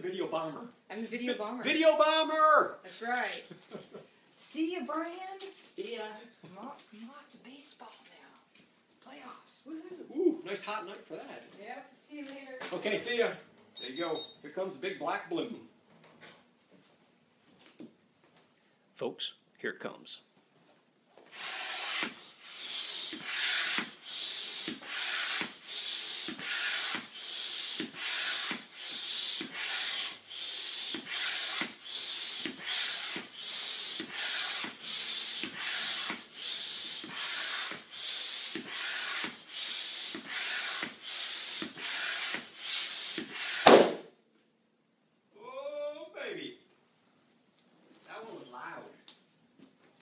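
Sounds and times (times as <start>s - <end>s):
hand pump strokes: 21.3s - 43.7s
balloon bursting: 21.3s - 44.2s.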